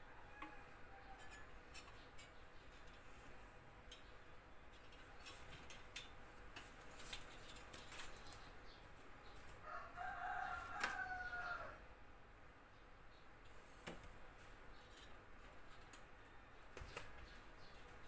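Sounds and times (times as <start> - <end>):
rooster crowing: 0.0 - 1.5, 9.6 - 11.8.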